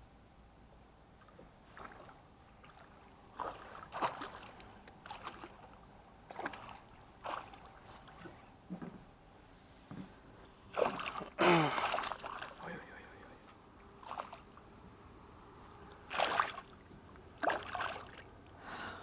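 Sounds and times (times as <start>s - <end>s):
fish splashing at surface: 10.7s - 12.6s, 14.0s - 14.5s, 16.0s - 16.8s, 17.4s - 18.2s.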